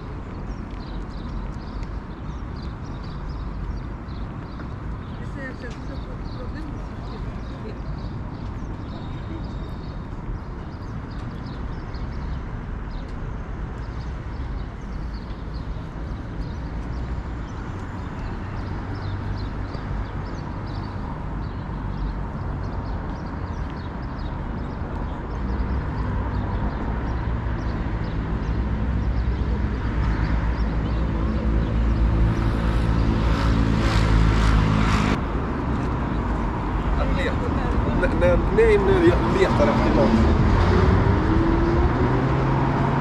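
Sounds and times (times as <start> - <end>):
road traffic: 0.0 - 43.0
vehicle engine approaching: 31.1 - 43.0.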